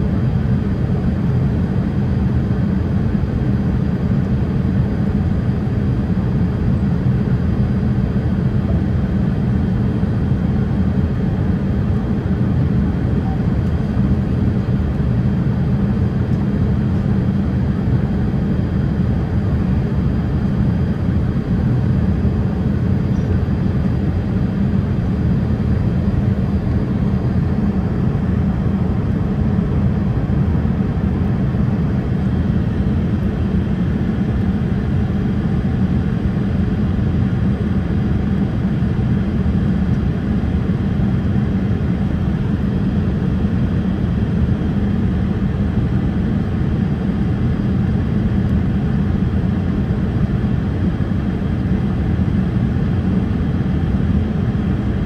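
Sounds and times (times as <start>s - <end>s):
airliner cabin noise: 8.4s - 36.8s.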